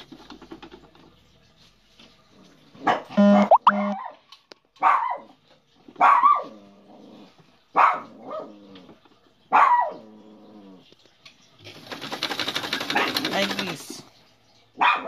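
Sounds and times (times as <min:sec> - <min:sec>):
dog barking: 0:02.8 - 0:04.2, 0:04.8 - 0:05.4, 0:06.0 - 0:06.5, 0:07.7 - 0:08.5, 0:09.5 - 0:10.0, 0:12.9 - 0:13.3, 0:14.8 - 0:15.0.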